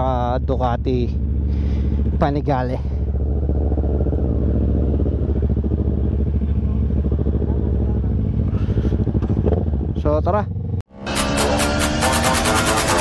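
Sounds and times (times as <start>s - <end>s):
motorcycle engine idling: 0.0s - 10.9s.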